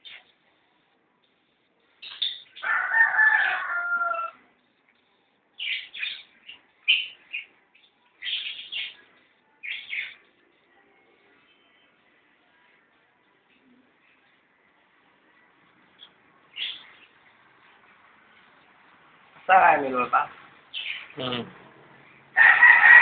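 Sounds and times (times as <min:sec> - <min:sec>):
high bird chirps: 0:02.0 - 0:04.3, 0:05.6 - 0:10.3, 0:20.7 - 0:21.2
rooster crowing: 0:02.6 - 0:04.4, 0:22.4 - 0:23.0.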